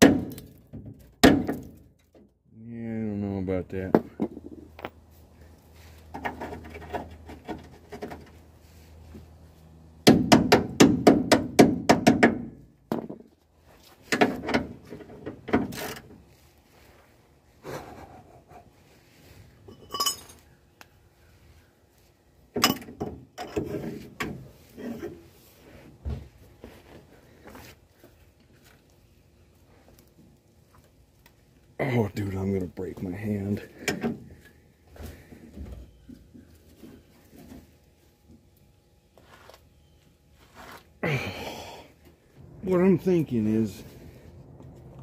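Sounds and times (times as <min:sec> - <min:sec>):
metal tools clinking on metal: 0:19.6 - 0:20.5.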